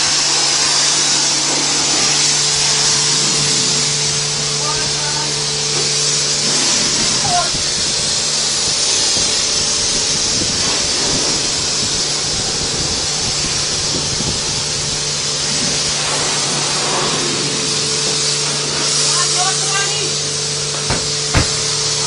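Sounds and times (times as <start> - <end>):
pressure washer spraying water: 0.0 - 22.0.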